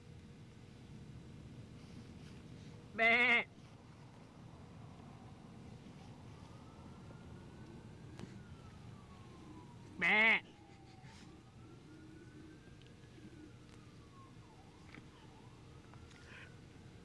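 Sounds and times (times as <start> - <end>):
loud bleating call: 3.0 - 3.5, 10.0 - 10.4
faint siren wailing: 3.6 - 17.0.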